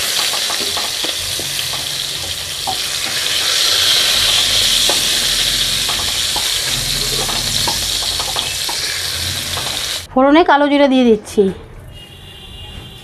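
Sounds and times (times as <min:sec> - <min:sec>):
hot oil sizzling: 0:00.0 - 0:10.1.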